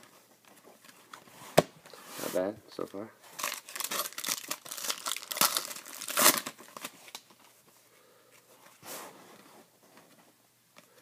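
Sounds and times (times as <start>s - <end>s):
foil wrapper tearing and crinkling: 3.4s - 7.3s
soft rustle: 6.9s - 10.5s.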